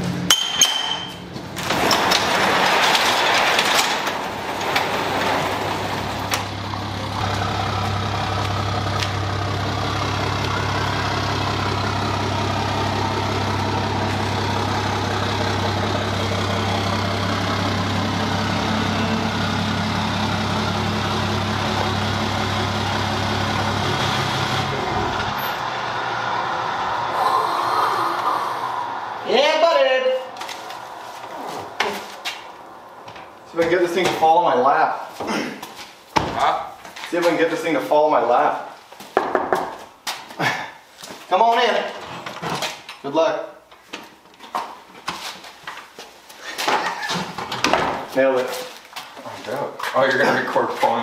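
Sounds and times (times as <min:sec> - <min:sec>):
garage door rattling: 0:00.4 - 0:08.1
truck engine running: 0:04.0 - 0:33.8.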